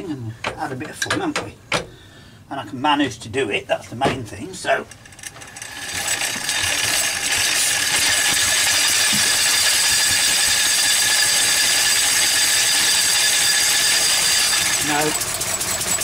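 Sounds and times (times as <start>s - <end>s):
machine whirring with high whine: 5.1s - 16.0s.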